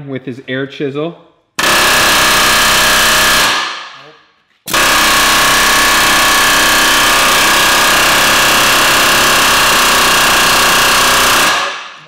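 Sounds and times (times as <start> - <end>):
pneumatic air chisel hammering: 1.6 - 3.8, 4.7 - 12.0.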